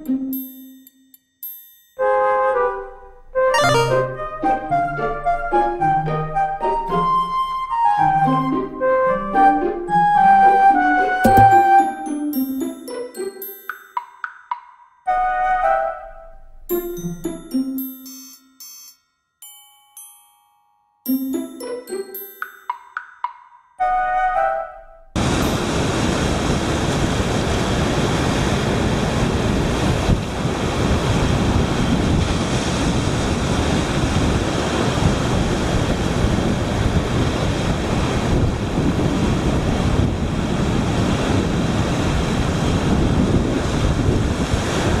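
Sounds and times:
wind buffeting microphone: 0:25.2 - 0:45.0.

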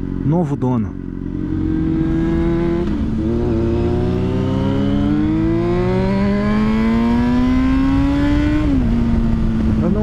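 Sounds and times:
motorcycle engine accelerating: 0:00.0 - 0:10.0.

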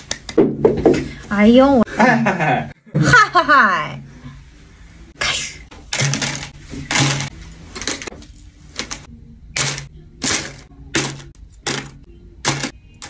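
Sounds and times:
metal ornaments clinking: 0:06.0 - 0:13.0.

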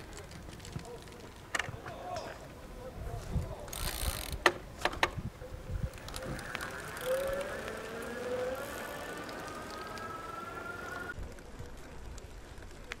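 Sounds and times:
electric motor whine rising: 0:06.0 - 0:11.2.

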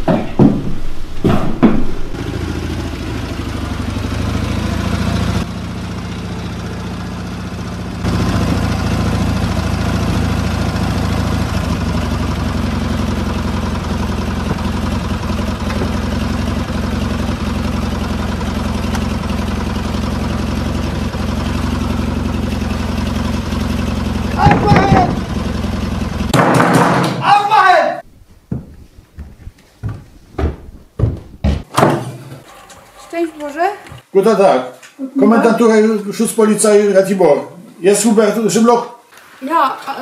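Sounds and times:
motorcycle engine idling: 0:02.2 - 0:26.3.

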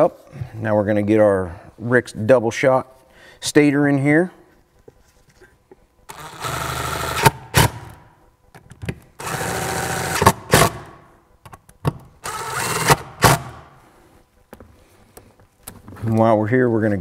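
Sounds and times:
cordless drill motor whirring: 0:06.1 - 0:08.0, 0:09.2 - 0:10.9, 0:12.2 - 0:13.6.

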